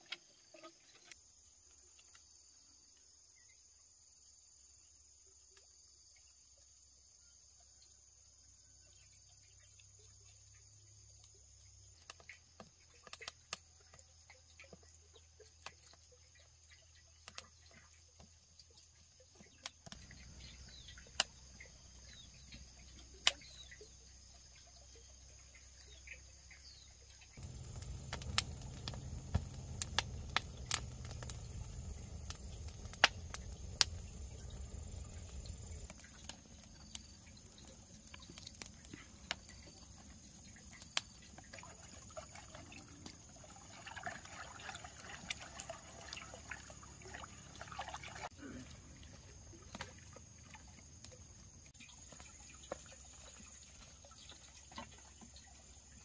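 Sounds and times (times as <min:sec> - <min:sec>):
insects trilling: 0:00.0 - 0:56.0
low rumbling noise: 0:27.4 - 0:35.9.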